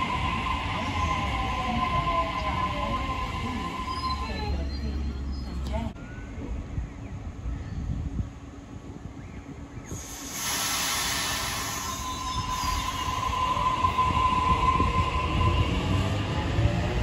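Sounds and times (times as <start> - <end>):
train wheels rumbling on rails: 0.0 - 6.7, 8.0 - 17.0
high-pitched squeal: 10.0 - 16.6.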